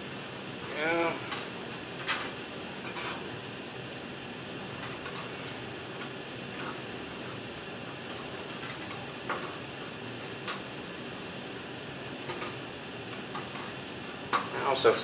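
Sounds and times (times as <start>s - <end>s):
air handling unit humming: 0.0s - 15.0s.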